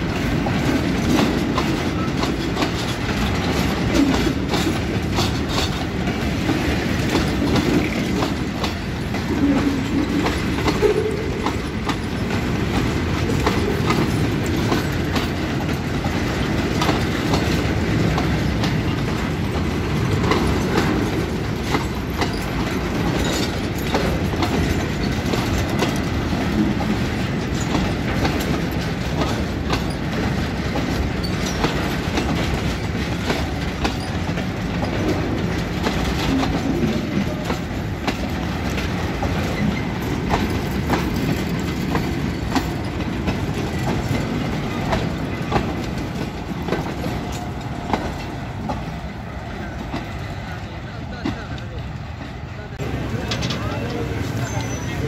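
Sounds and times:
freight train wheels rumbling on rail: 0:00.0 - 0:55.0
wheels clacking over rail joints: 0:00.0 - 0:55.0.

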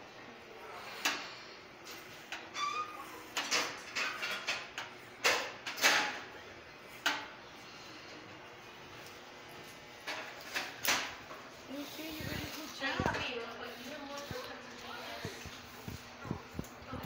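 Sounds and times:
room noise: 0:00.0 - 0:17.0.

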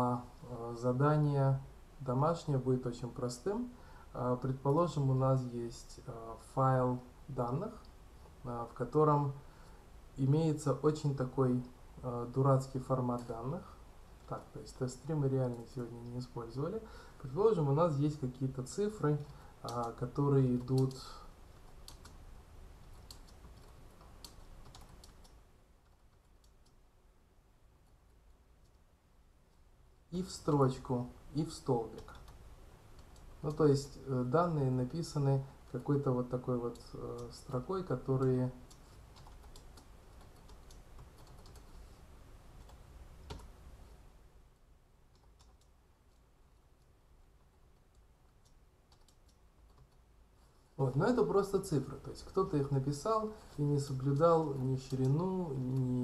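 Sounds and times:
faint keyboard typing: 0:10.7 - 0:27.0, 0:27.7 - 0:28.9, 0:29.5 - 0:44.0, 0:45.0 - 0:56.0
typing on computer keyboard: 0:21.6 - 0:22.2, 0:22.8 - 0:26.8, 0:38.7 - 0:41.8, 0:42.6 - 0:43.5, 0:45.1 - 0:46.2, 0:47.4 - 0:50.0.

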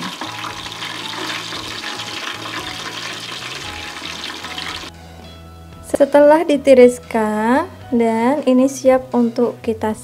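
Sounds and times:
shrimp sizzling in hot oil: 0:00.0 - 0:04.9.

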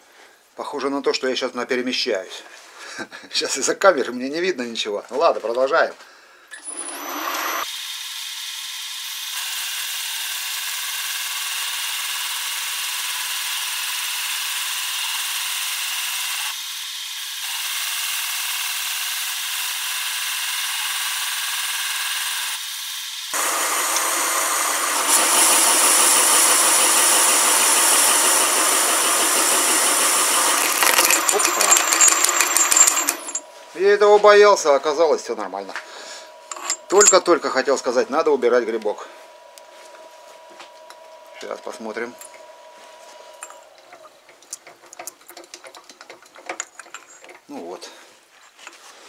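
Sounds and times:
parting tool cutting aluminium: 0:06.5 - 0:33.5, 0:36.1 - 0:37.9
lathe whining: 0:06.6 - 0:07.7, 0:23.2 - 0:47.4.

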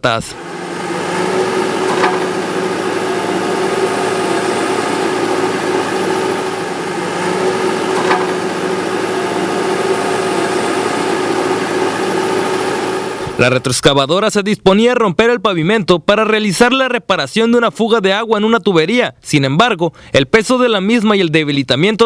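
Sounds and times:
engine idling: 0:00.3 - 0:13.7.

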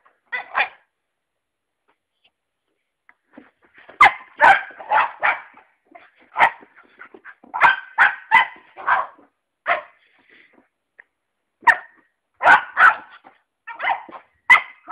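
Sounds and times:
puppy barking: 0:00.3 - 0:00.9, 0:04.0 - 0:10.0, 0:11.6 - 0:14.9.

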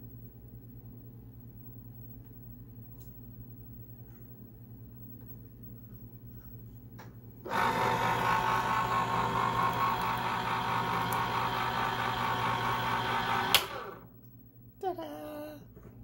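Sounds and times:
can opener motor running: 0:07.5 - 0:14.1.

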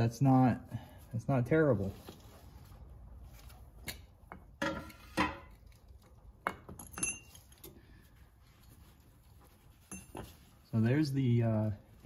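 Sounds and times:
metal parts clinking: 0:06.6 - 0:07.8.

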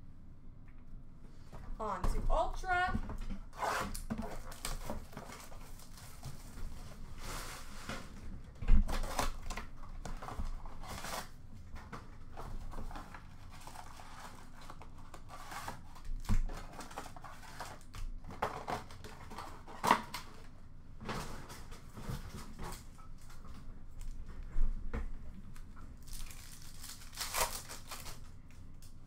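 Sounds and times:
cardboard tearing: 0:03.5 - 0:07.8, 0:08.8 - 0:09.6, 0:10.2 - 0:11.4, 0:26.0 - 0:28.2
cardboard rustling: 0:03.5 - 0:20.2.

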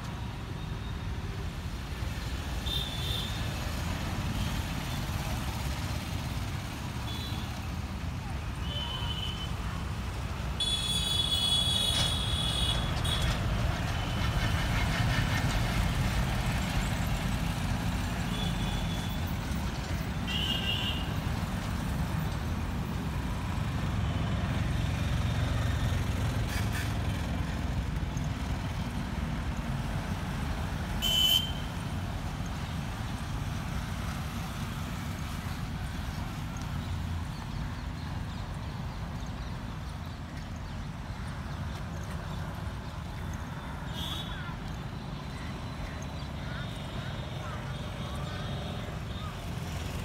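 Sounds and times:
road traffic rumble: 0:00.0 - 0:50.0
vehicle horns: 0:10.6 - 0:13.4, 0:20.3 - 0:21.1, 0:31.0 - 0:31.7, 0:43.9 - 0:44.4.

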